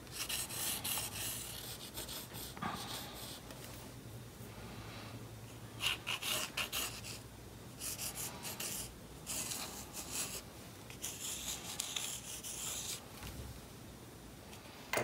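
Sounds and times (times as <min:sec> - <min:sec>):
pencil scratching on cardboard: 0:00.1 - 0:03.4, 0:05.8 - 0:07.2, 0:07.8 - 0:13.0.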